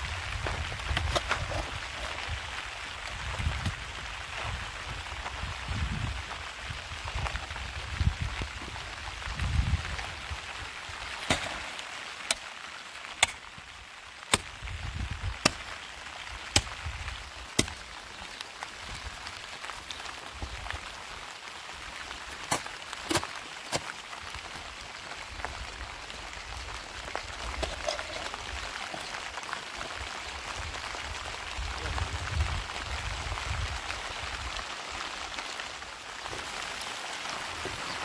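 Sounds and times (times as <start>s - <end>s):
steady rain: 0.0s - 38.0s.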